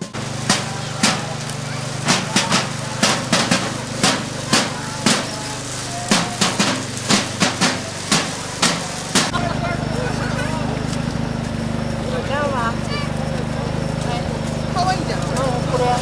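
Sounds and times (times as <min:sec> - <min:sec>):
percussion strikes: 0:00.0 - 0:12.0.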